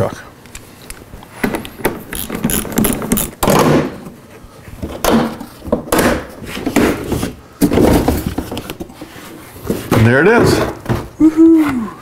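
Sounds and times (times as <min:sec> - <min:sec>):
plastic bumper knocking and scraping: 0:04.8 - 0:08.9, 0:09.6 - 0:11.2.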